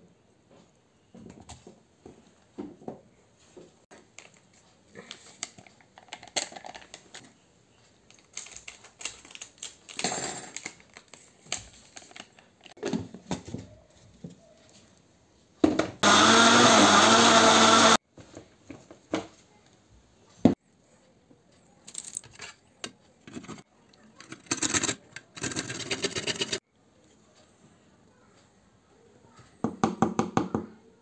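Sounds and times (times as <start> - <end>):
blender motor running: 16.0 - 18.0.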